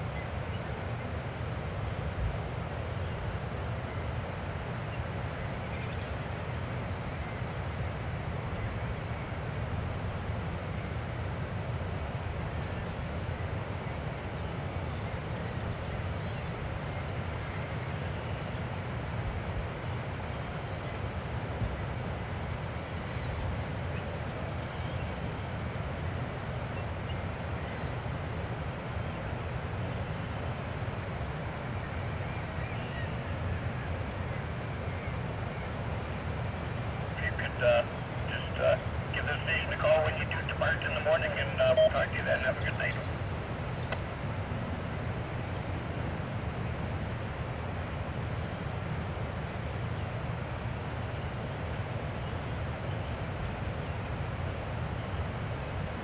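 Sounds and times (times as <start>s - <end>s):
distant ship engines rumbling: 33.8s - 48.6s.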